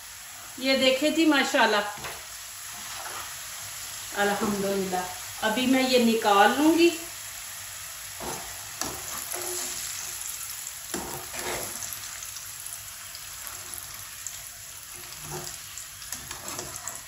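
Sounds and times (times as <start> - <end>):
food sizzling in hot oil: 0.0 - 17.0
skimmer scraping a pan: 2.7 - 3.4, 8.2 - 10.2, 10.9 - 12.0, 13.3 - 14.0, 14.9 - 17.0.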